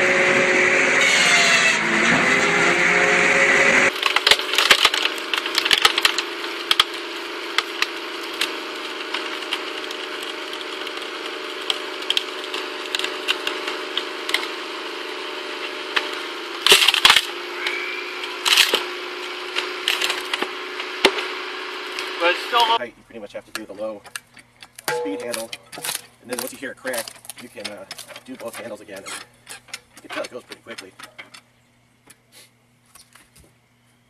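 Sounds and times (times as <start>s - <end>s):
firewood processor running: 0.0s - 22.8s, 23.5s - 31.6s
low drive hum: 0.0s - 34.0s
log cracking and splintering: 3.9s - 22.1s, 24.1s - 31.1s.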